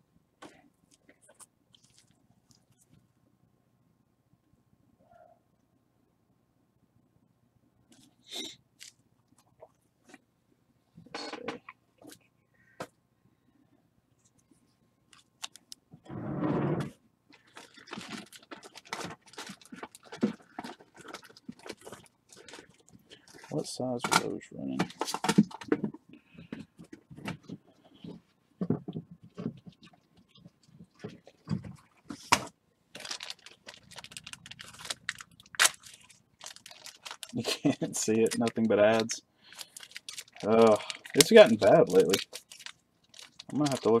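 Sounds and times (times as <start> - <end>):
foil wrapper crinkling: 1.7 - 2.9, 17.3 - 23.6, 29.4 - 44.0.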